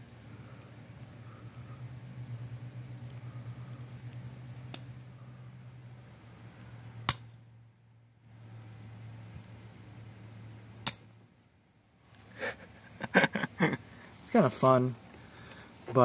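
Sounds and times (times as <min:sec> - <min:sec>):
low electrical buzz: 0:00.0 - 0:16.0
electrical arc snapping: 0:04.7 - 0:04.9, 0:07.0 - 0:07.4, 0:10.8 - 0:11.1.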